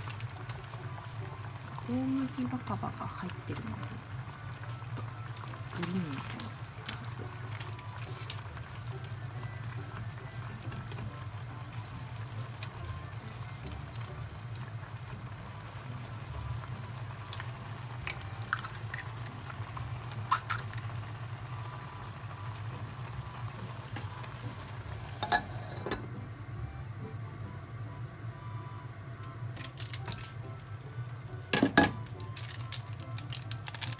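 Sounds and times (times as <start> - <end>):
noodles simmering in a pot: 0.0 - 26.4, 28.9 - 33.9
egg cracking: 17.0 - 21.2, 29.6 - 33.9.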